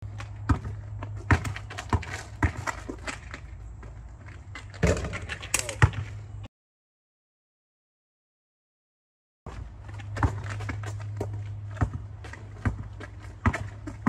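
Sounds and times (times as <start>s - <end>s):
basketball bouncing on driveway: 0.0s - 6.2s, 9.5s - 14.0s.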